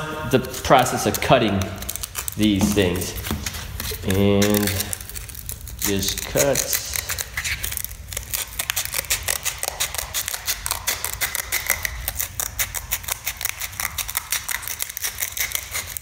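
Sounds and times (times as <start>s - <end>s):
scissors snipping sandpaper: 0.3s - 16.0s.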